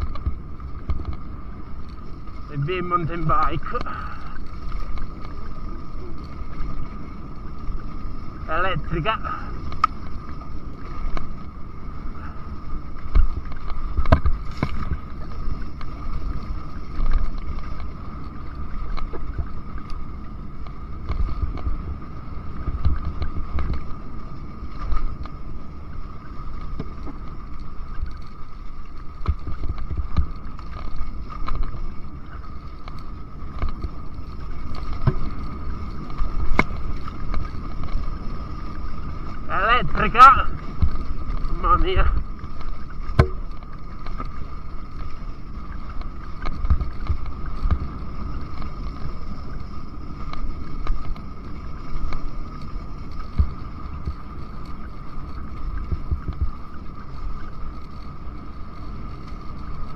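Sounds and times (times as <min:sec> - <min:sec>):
bike knocking over stones: 0:41.9 - 0:44.4.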